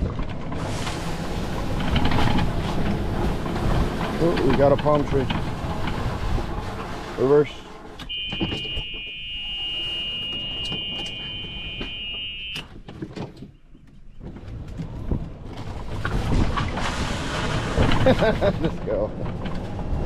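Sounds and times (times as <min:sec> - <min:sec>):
golf cart rolling rumble: 0:00.0 - 0:20.0
reverse warning buzzer: 0:08.1 - 0:12.6.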